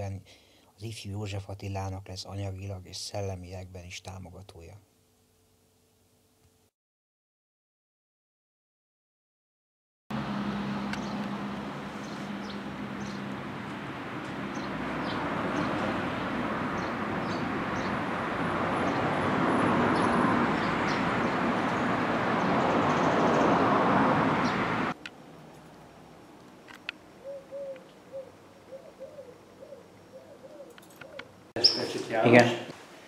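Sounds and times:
low hum: 10.1s - 18.6s
bird chirps: 10.9s - 11.3s, 11.9s - 13.3s, 16.8s - 18.1s, 19.9s - 21.8s, 26.8s - 32.1s.

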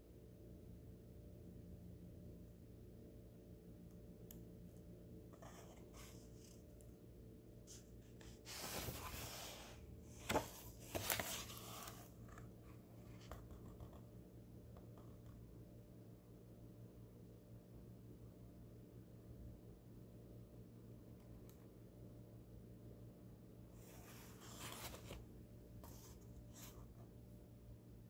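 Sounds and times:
paper pages rustling: 7.6s - 14.0s, 23.8s - 25.2s.

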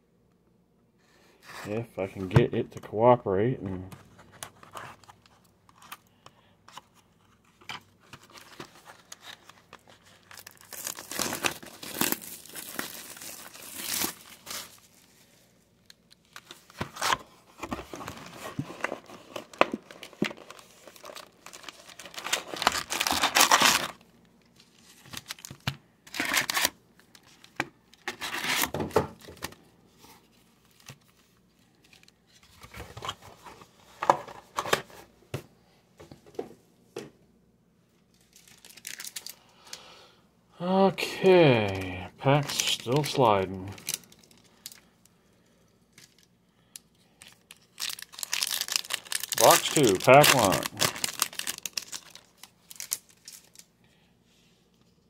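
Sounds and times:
packaging tearing and crinkling: 8.2s - 15.1s, 17.9s - 24.0s, 24.7s - 27.4s, 28.0s - 28.7s, 38.2s - 39.4s, 41.6s - 44.8s, 47.2s - 53.7s.

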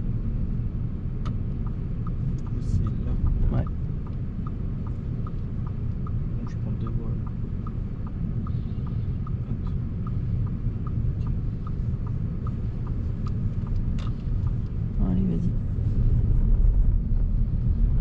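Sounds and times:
engine and tyres rumbling: 0.0s - 18.0s
turn indicator relay ticking: 1.2s - 15.0s.

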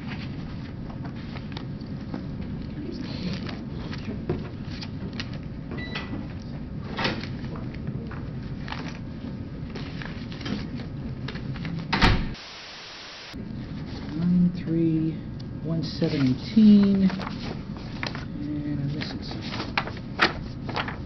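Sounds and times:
low room rumble: 0.0s - 12.2s, 13.3s - 21.0s
steady hiss: 12.4s - 13.4s.

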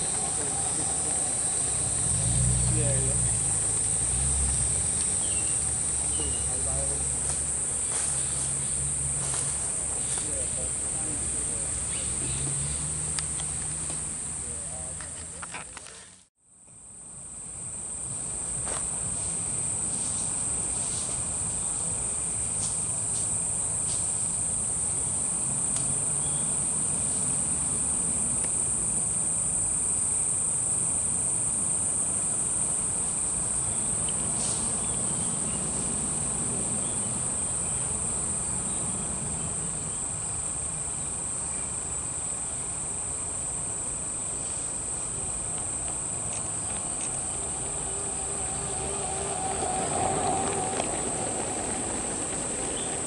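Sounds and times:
insects chirring: 0.0s - 53.0s.

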